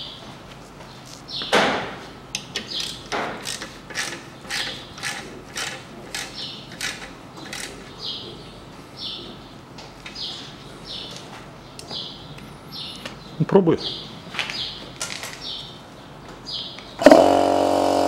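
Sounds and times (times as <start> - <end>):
ratchet wrench clicking: 2.4 - 7.8.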